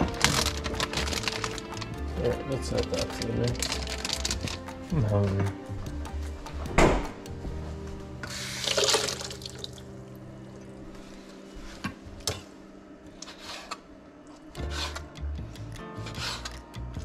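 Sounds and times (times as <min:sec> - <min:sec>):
water splashing into metal bowl: 0:08.6 - 0:09.9.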